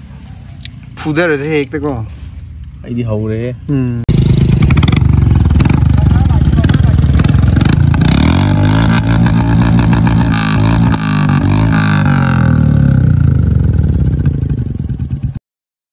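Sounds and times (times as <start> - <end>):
motorcycle engine revving: 3.8 - 15.4.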